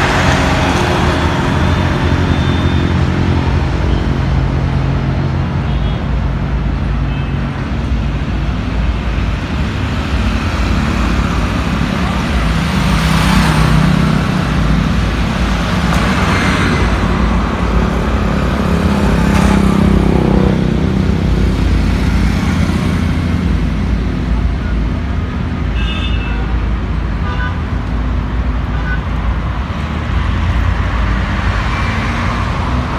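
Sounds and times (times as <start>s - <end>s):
motorcycles and scooters passing: 10.0s - 23.6s.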